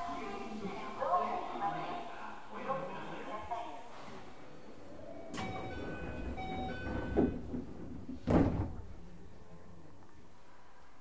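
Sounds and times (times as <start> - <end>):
door chime: 5.3 - 7.4
doors closing with a thud: 5.3 - 9.0.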